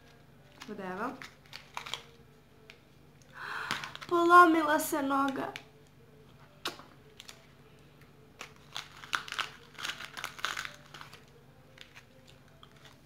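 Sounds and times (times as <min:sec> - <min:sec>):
plastic candy wrapper crinkling: 0:00.1 - 0:02.8, 0:03.6 - 0:04.6, 0:06.6 - 0:07.5, 0:08.4 - 0:13.0.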